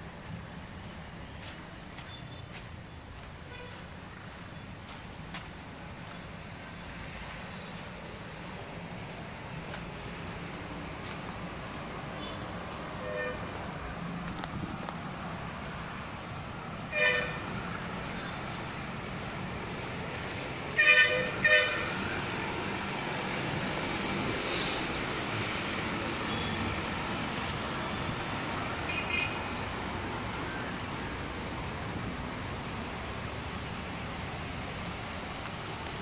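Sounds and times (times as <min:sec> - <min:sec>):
road traffic hum: 0:00.0 - 0:36.0
vehicle horn honking: 0:13.0 - 0:13.6, 0:16.9 - 0:17.5, 0:20.8 - 0:22.0, 0:28.9 - 0:29.4.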